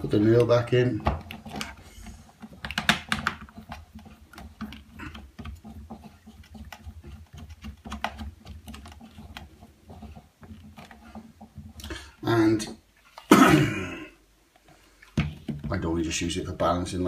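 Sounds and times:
plastic clicks and rattles: 2.4s - 5.6s.

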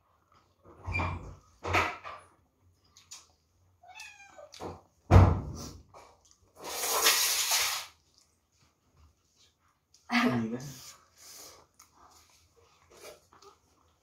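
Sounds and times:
cat meowing: 3.8s - 4.6s.

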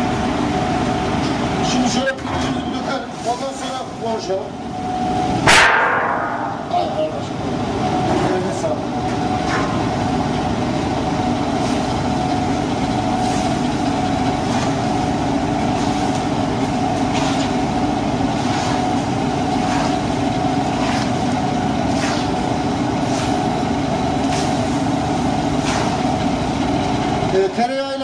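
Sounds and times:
loud machine hum: 0.0s - 28.0s.

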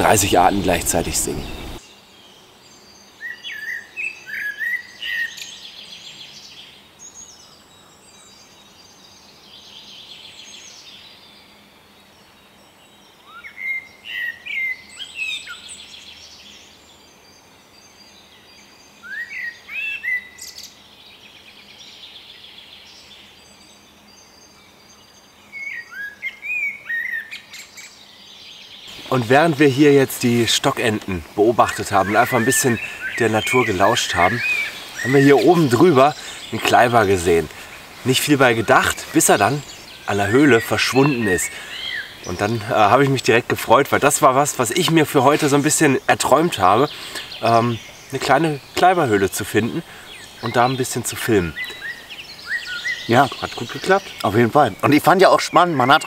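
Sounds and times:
high bird chirps: 0.0s - 1.8s, 28.8s - 56.0s
blackbird singing: 0.0s - 56.0s.

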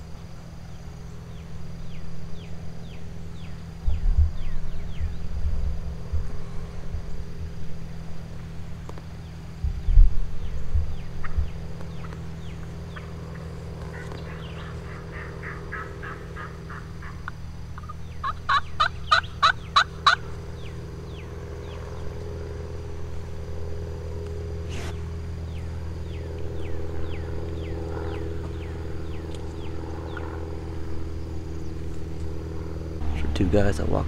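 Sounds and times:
birds chirping: 0.0s - 6.8s, 8.8s - 34.0s
turkey yelping: 13.8s - 20.2s.

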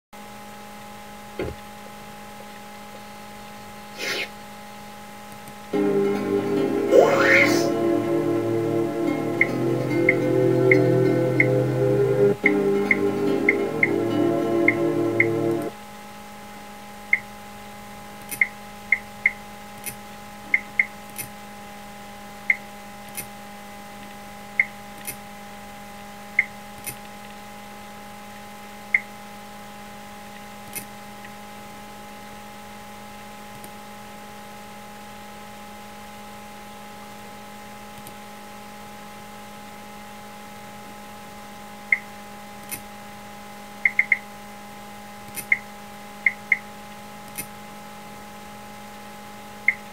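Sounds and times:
steady electrical hum: 0.2s - 49.9s
computer mouse clicks: 18.2s - 21.3s, 22.5s - 23.3s, 25.0s - 25.2s, 26.4s - 27.4s, 30.6s - 31.4s, 33.5s - 33.8s, 38.0s - 38.2s, 41.9s - 42.9s, 45.3s - 45.6s, 47.3s - 47.5s.

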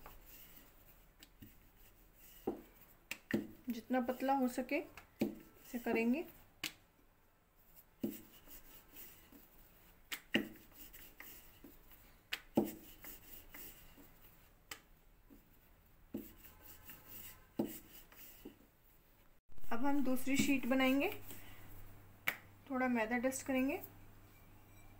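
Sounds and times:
rolling pin rubbing dough: 7.7s - 14.6s, 15.2s - 18.6s.

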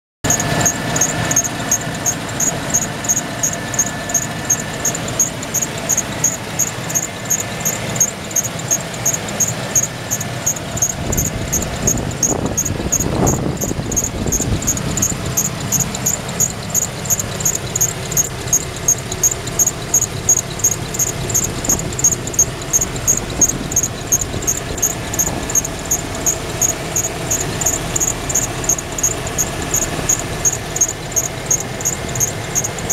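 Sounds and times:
pickup engine idling: 0.2s - 32.9s
sharp high-pitched chirp: 0.3s - 32.9s.

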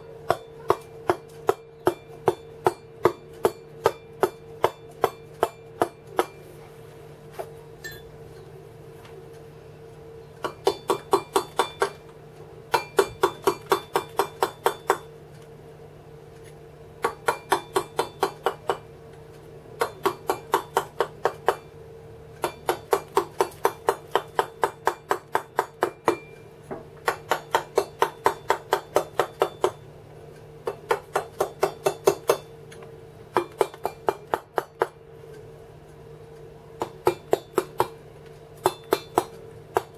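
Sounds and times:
mallet striking steel chisel: 0.2s - 6.4s, 10.4s - 12.0s, 12.7s - 15.1s, 17.0s - 18.9s, 19.8s - 21.7s, 22.4s - 26.4s, 27.0s - 29.8s, 30.6s - 32.5s, 33.3s - 35.0s, 36.8s - 38.0s, 38.6s - 39.9s.

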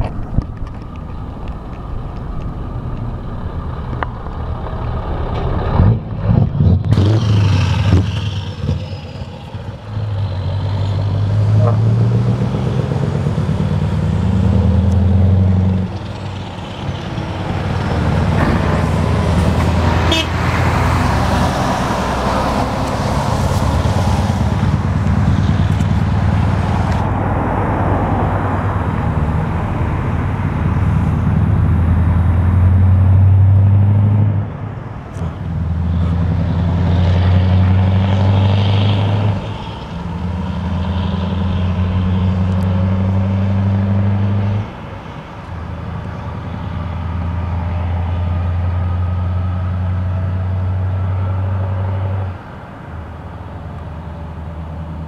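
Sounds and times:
truck engine revving: 1.2s - 44.8s.

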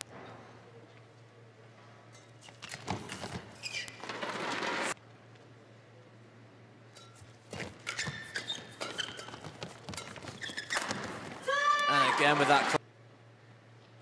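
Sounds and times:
court shoes squeaking: 2.0s - 5.0s, 7.0s - 11.5s.

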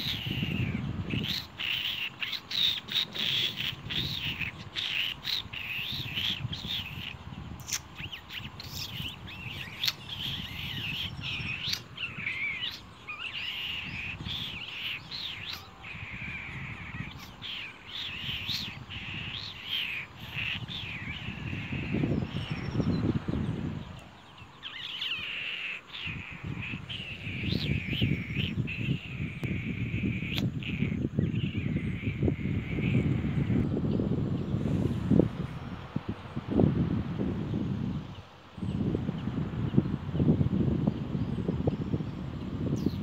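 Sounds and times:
nestling birds begging calls: 0.0s - 43.0s.

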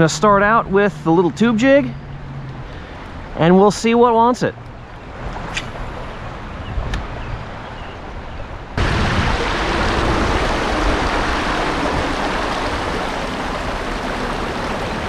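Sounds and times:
river water rushing over rocks: 8.8s - 15.0s.

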